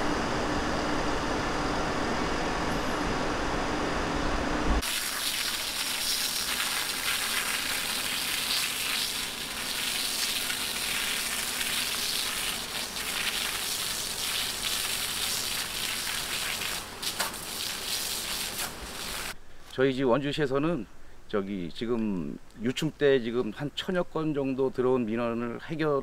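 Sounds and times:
high-pressure spray jet hissing: 4.8 - 19.4.

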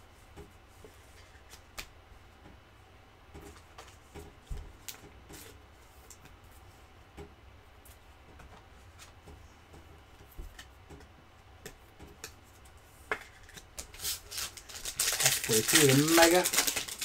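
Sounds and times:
trading cards clicking and rustling: 13.1 - 17.0.

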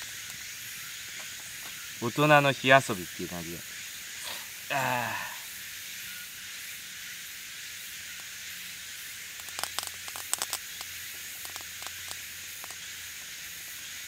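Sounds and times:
steady fire hiss: 0.0 - 14.0
twig fire snapping and crackling: 9.4 - 13.3.

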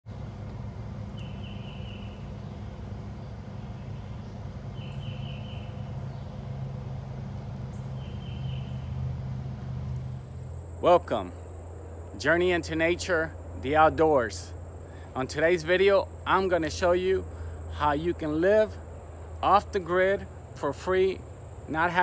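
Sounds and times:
steady low rumble: 0.1 - 22.0
bird singing high notes: 1.2 - 2.6, 3.7 - 6.4, 7.7 - 9.0.

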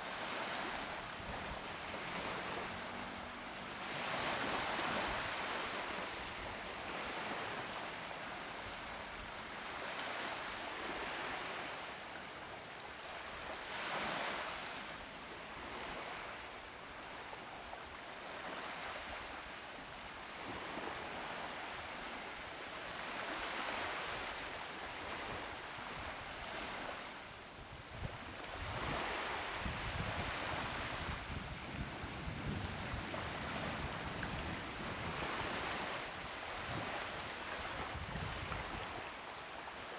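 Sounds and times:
waves washing onto beach: 0.0 - 39.9
wind buffeting microphone: 27.9 - 35.9, 37.6 - 39.1.

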